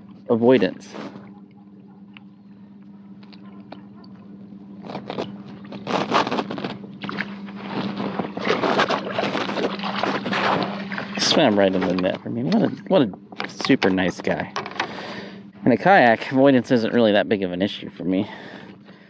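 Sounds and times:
fish splashing at water surface: 0:07.0 - 0:11.2.

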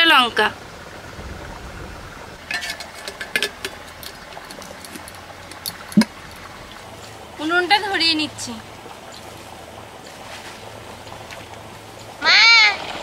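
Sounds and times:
steel box clicking and clinking: 0:02.4 - 0:06.5.

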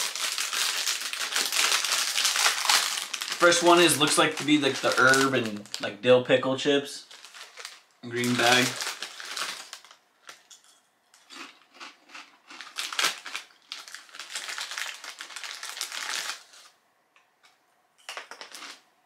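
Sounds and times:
foil chip bag crinkling: 0:00.0 - 0:06.0, 0:07.0 - 0:16.8, 0:18.1 - 0:18.8.

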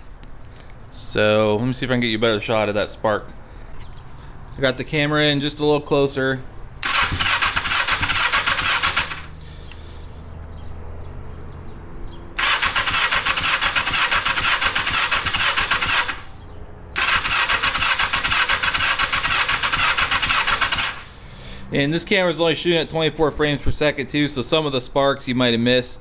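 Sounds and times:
electric starter cranking engine: 0:06.8 - 0:09.4, 0:12.4 - 0:16.4, 0:17.0 - 0:21.2.

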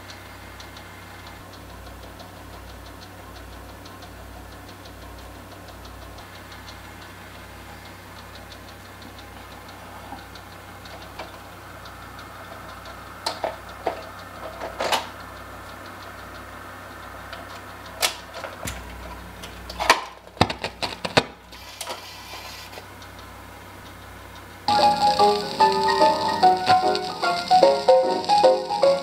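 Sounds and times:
faint fast ticking: 0:00.0 - 0:19.7, 0:21.4 - 0:29.0
record changer humming: 0:00.0 - 0:29.0
records clicking and knocking: 0:08.8 - 0:15.3, 0:17.3 - 0:22.0, 0:24.7 - 0:29.0.

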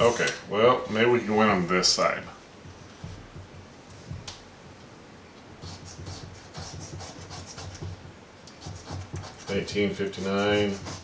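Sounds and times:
coin scratching lottery ticket: 0:08.6 - 0:11.0.

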